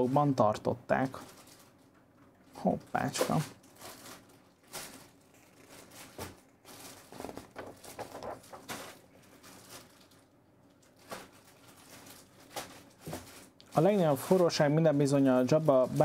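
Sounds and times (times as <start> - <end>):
paper rustling: 3.0 - 10.2, 10.9 - 16.0.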